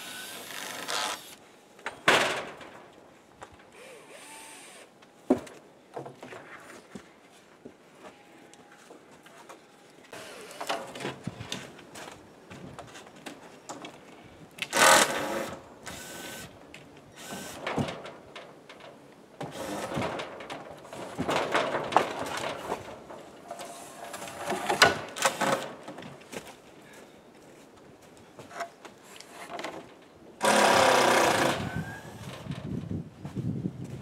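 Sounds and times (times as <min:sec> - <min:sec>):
knocks and clatter of boards: 0:19.4 - 0:23.3.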